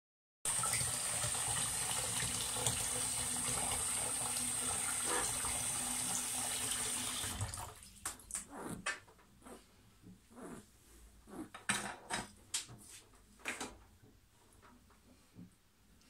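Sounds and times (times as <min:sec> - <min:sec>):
tap water running: 0:00.5 - 0:08.4.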